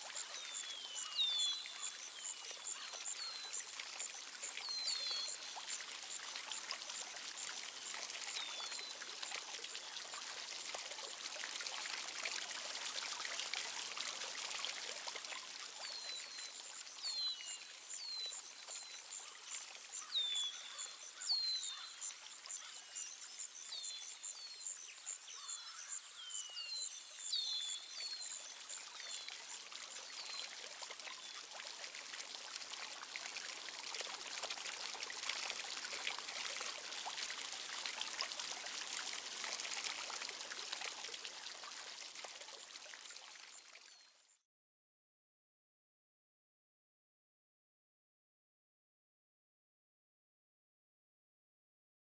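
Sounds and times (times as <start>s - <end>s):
running water rushing: 0.0s - 22.6s, 27.8s - 44.0s.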